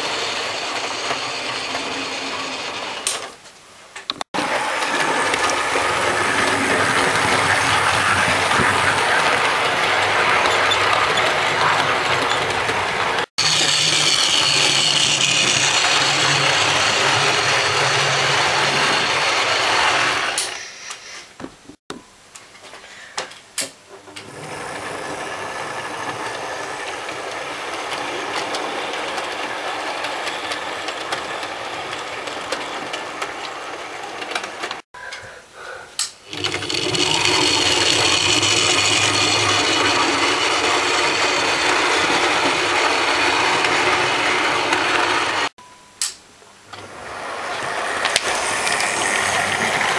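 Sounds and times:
wheels rattling over track: 4.3s - 20.6s, 24.2s - 34.8s, 36.3s - 45.5s, 46.8s - 49.9s
model train motor whirring: 4.4s - 21.0s, 36.3s - 45.5s, 46.9s - 49.9s.

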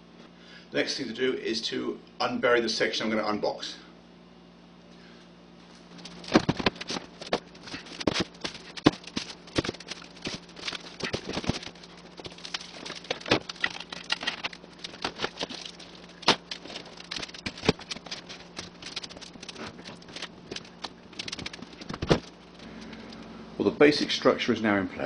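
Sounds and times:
boxes knocking and scraping: 6.1s - 22.3s.

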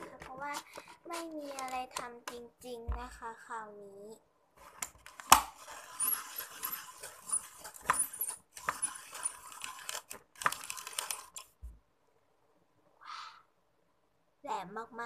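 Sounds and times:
pencil sharpener grinding: 4.6s - 11.6s.

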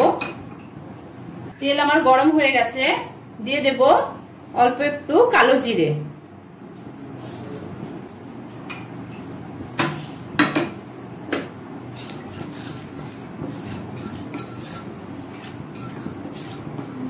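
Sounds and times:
seeds crackling in hot oil: 11.9s - 16.8s.

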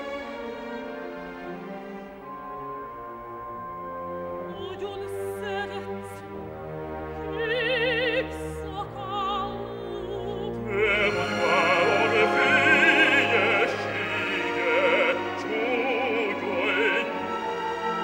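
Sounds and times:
orchestra playing: 0.0s - 18.0s
soprano singing with vibrato: 4.5s - 6.2s, 7.2s - 18.0s.

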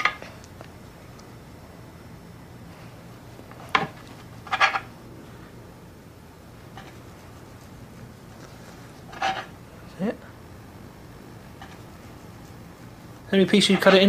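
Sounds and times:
knife squeaky scrape: 9.1s - 9.5s.

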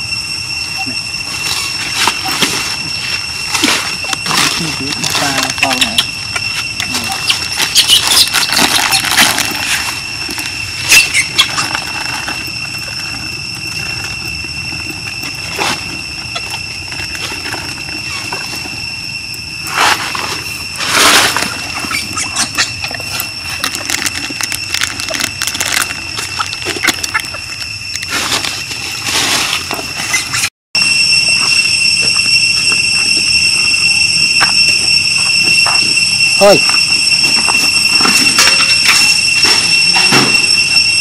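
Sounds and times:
high-pitched insect drone: 0.0s - 41.0s.

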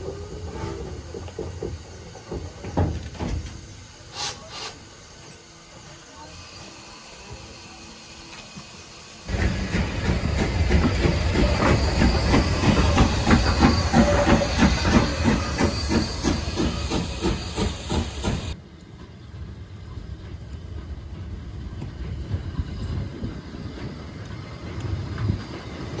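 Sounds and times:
hissing steam: 0.0s - 18.6s
distant train: 0.0s - 26.0s
steam locomotive chuffing: 0.0s - 26.0s.

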